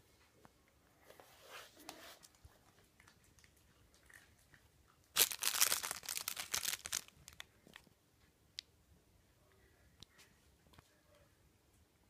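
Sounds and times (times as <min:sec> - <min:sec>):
plastic bag crinkling: 0:05.1 - 0:07.5.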